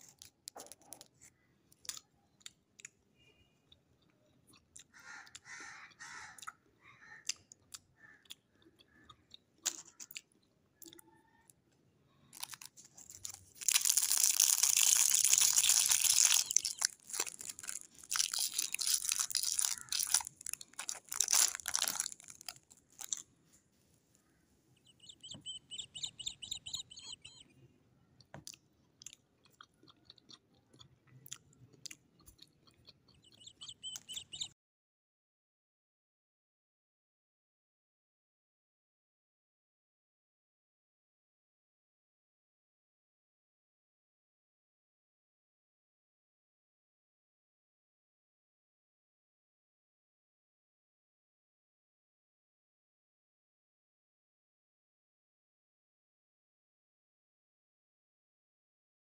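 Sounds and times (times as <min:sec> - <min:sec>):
cellophane wrapper crinkling: 0:12.4 - 0:23.2.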